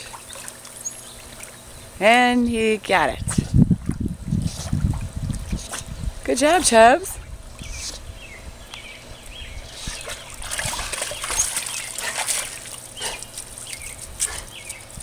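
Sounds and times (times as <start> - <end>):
pool water splashing: 0.0 - 3.1, 8.1 - 15.0.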